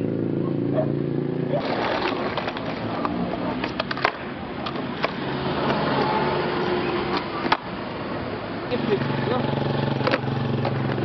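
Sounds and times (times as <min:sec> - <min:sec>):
skateboard wheels rolling on concrete: 0:00.0 - 0:11.0
skateboard clacking on ground: 0:01.6 - 0:07.8, 0:09.9 - 0:11.0.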